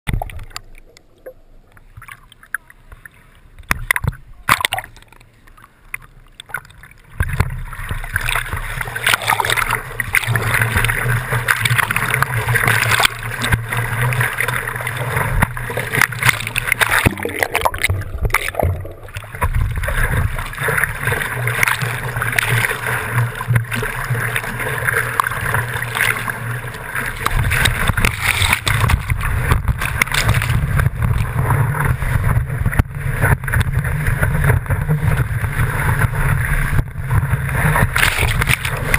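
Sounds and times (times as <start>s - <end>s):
surf rushing and churning: 6.5s - 38.9s
wind on microphone: 27.2s - 38.9s.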